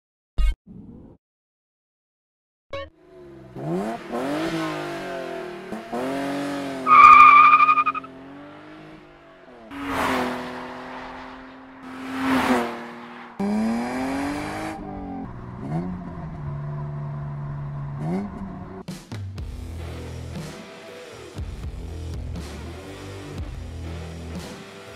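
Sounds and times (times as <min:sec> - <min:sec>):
car engine revving: 0:03.0 - 0:18.8
loud high squeal: 0:06.9 - 0:08.1.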